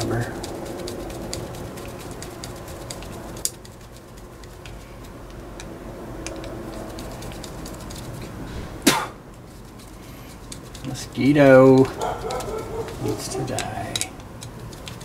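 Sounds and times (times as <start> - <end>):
steady low hum: 0.0 - 15.0
screwdriver clicking on screw: 11.7 - 15.0.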